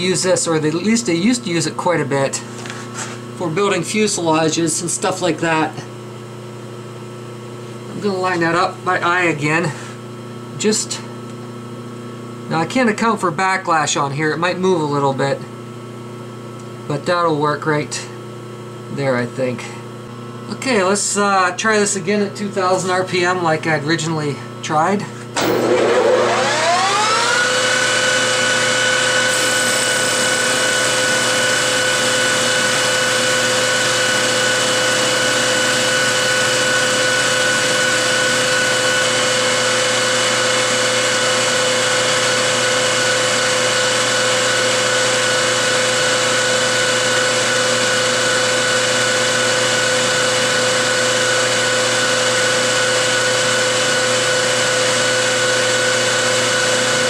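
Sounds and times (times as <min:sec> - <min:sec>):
metal lathe whine: 0:25.4 - 0:57.0.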